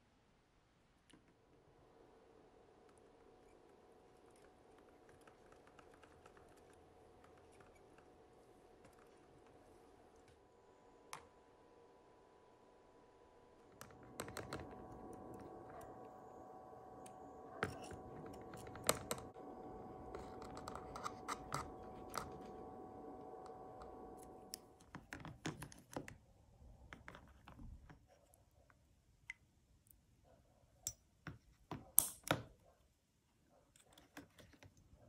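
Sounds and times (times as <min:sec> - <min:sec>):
faint machine hum: 0:00.0 - 0:31.0.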